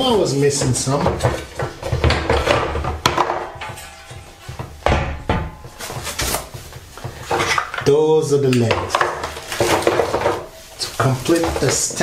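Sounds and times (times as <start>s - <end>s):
metal parts knocking and clattering: 0.7s - 8.0s.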